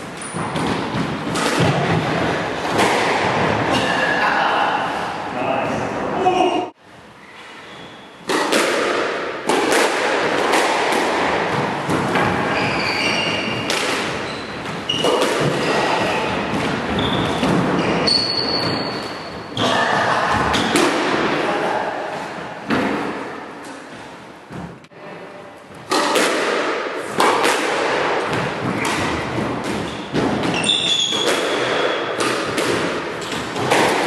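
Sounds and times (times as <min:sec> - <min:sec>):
shoe squeaks on wooden floor: 0:07.2 - 0:08.2, 0:12.5 - 0:13.6, 0:14.2 - 0:16.3, 0:16.9 - 0:19.7, 0:29.8 - 0:31.5
squash ball cracking off rackets: 0:08.3 - 0:12.5, 0:25.8 - 0:34.0.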